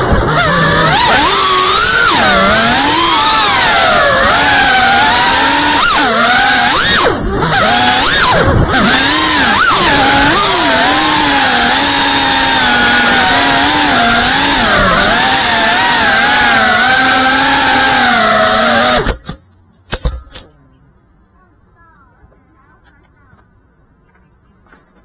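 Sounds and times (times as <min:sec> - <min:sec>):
drone motors whining: 0:00.0 - 0:19.4.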